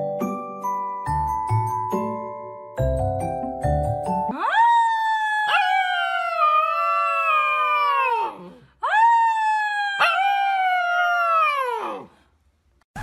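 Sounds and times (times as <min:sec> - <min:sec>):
puppy howling: 0:04.3 - 0:12.1.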